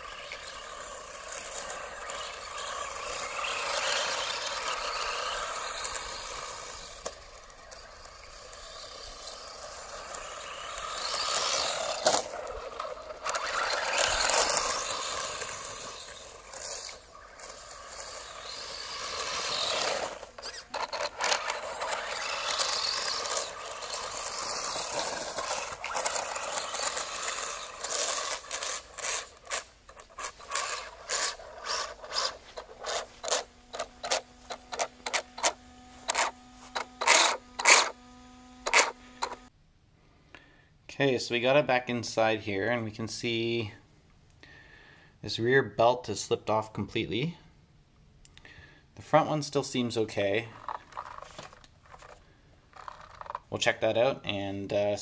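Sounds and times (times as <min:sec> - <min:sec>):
electric motor whining: 0:00.0 - 0:39.5
steady hum: 0:00.0 - 0:39.5
rapid ratcheting clicks: 0:20.8 - 0:38.0, 0:38.6 - 0:39.4.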